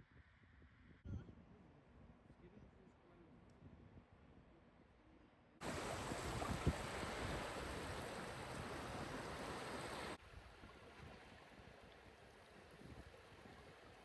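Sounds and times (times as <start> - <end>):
small waves washing ashore: 5.6 - 14.0.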